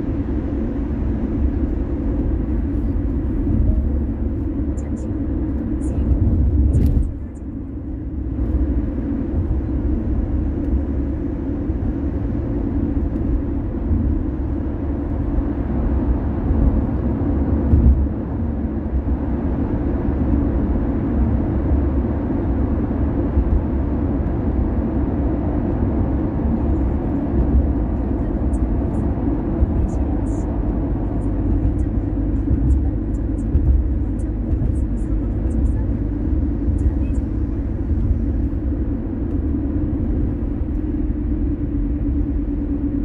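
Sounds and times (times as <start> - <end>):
car road and engine noise: 0.0 - 43.0.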